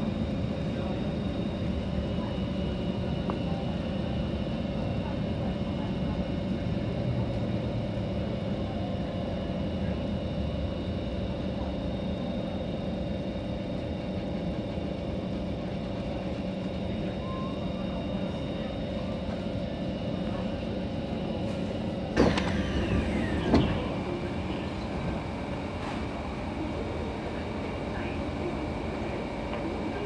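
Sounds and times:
traction motor whine: 0:21.6 - 0:30.0.

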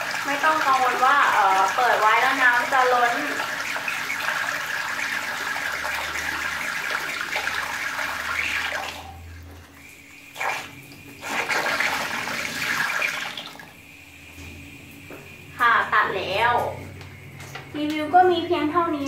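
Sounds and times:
water splashing into tank: 0:00.0 - 0:15.4.

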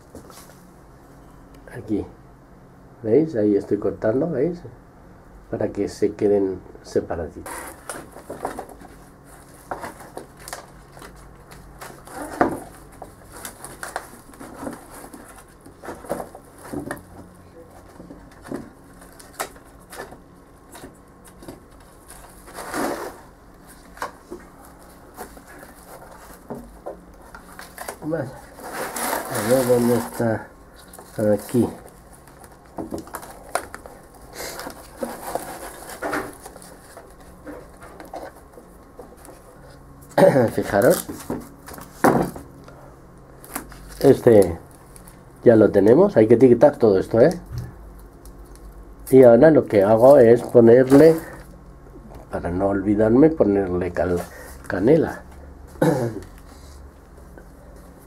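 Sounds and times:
plants rustling: 0:07.5 - 0:39.8.

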